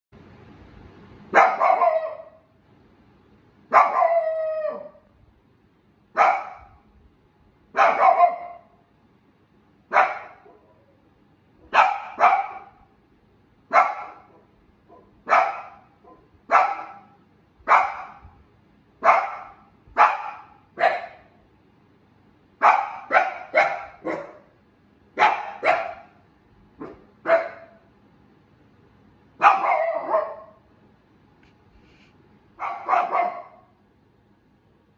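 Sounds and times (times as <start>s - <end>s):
dog barking: 1.3s - 2.5s, 3.7s - 5.1s, 6.2s - 6.8s, 7.7s - 8.8s, 9.9s - 11.0s, 11.6s - 12.9s, 13.7s - 18.4s, 19.0s - 21.4s, 22.6s - 24.6s, 25.2s - 26.2s, 26.8s - 27.9s, 29.4s - 30.7s, 32.6s - 33.8s.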